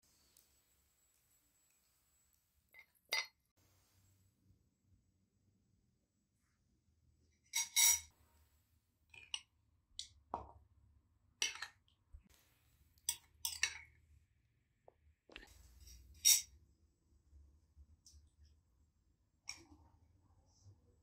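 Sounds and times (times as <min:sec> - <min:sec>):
dishes and utensils clinking: 0:07.5 - 0:08.2, 0:13.1 - 0:14.0, 0:15.3 - 0:16.5.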